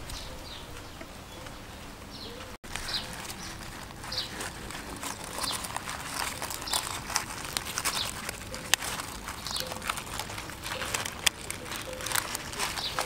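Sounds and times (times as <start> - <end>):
birds chirping faintly: 0.0 - 13.0
bamboo stick scraping fish: 2.6 - 13.0.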